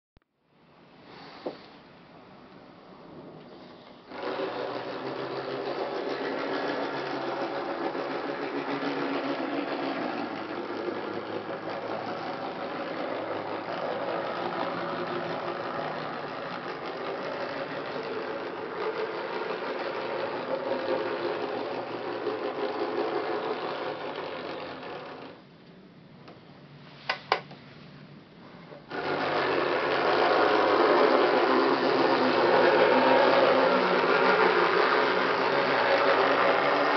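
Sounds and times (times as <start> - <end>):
model locomotive motor whirring: 4.1 - 25.4, 28.9 - 36.9.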